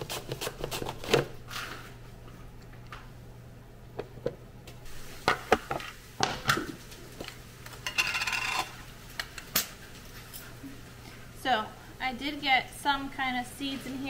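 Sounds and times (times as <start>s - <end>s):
kitchen utensils knocking and clicking: 7.8s - 8.7s.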